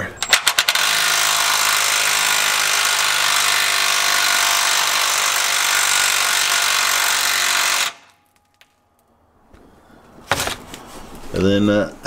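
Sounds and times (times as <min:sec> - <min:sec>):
impact wrench hammering: 0:00.2 - 0:08.2.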